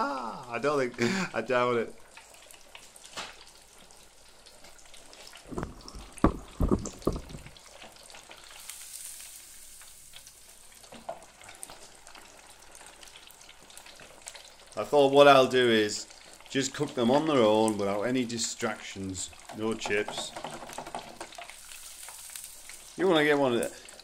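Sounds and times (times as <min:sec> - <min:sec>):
food deep frying in oil: 0:00.1 - 0:24.0
dull knocks: 0:05.5 - 0:07.6.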